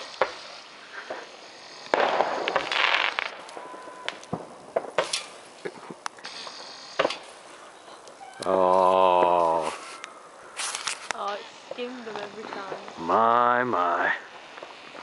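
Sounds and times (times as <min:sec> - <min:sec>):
sharp cracks and pops: 0:00.0 - 0:11.4
firework rockets hissing: 0:00.0 - 0:15.0.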